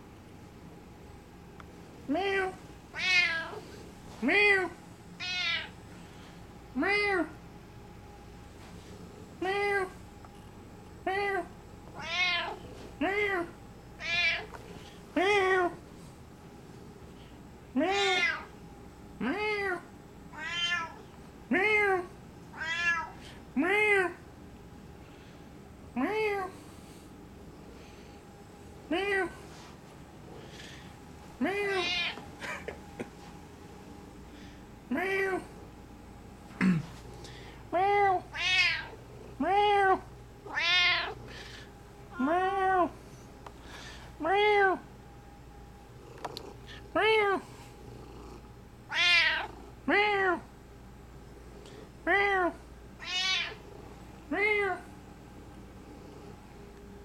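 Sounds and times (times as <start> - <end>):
cat meowing: 2.9 - 3.6, 5.2 - 5.8, 12.0 - 12.6, 14.0 - 14.5, 17.9 - 18.5, 20.3 - 21.0, 22.5 - 23.2, 31.6 - 32.2, 38.0 - 39.0, 40.5 - 41.2, 48.9 - 49.5, 53.0 - 53.6.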